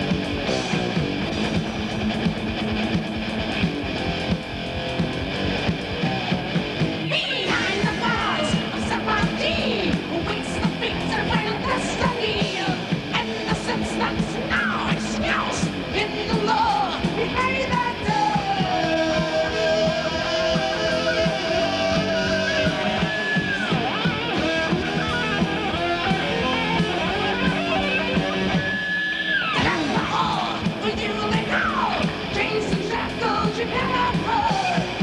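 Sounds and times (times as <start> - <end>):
heavy metal band playing: 0.0 - 35.0
person singing: 7.1 - 24.0, 29.4 - 35.0.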